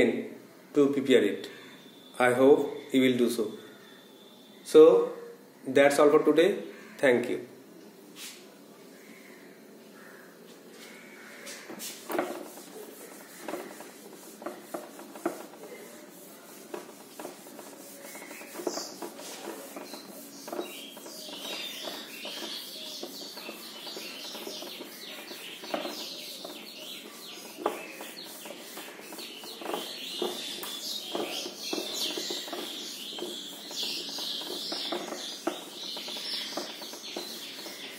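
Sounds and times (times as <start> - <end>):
rubbing strokes on whiteboard: 11.4 - 37.9
high chirping: 15.2 - 37.9.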